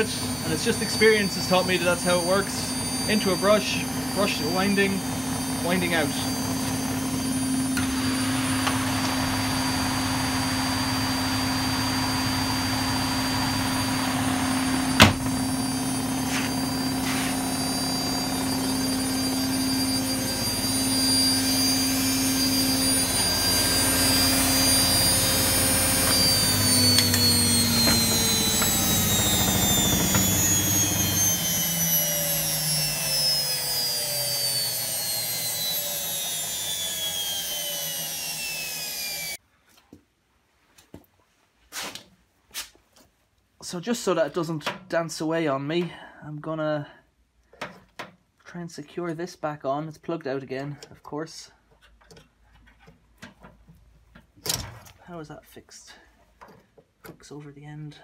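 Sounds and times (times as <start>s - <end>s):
washing machine motor whining: 0.0s - 39.4s.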